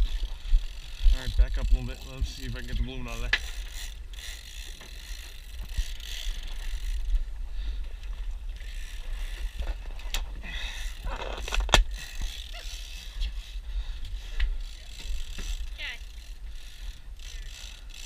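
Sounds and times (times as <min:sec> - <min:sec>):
wind rumbling on microphone: 0:00.0 - 0:03.6.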